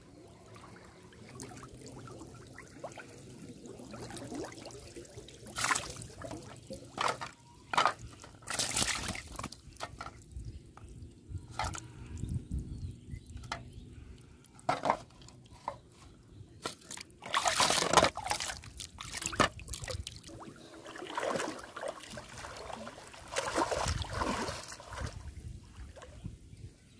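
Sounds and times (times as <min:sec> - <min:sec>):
river water splashing: 0:00.4 - 0:06.6, 0:17.2 - 0:26.0
person wading through water: 0:17.2 - 0:26.2.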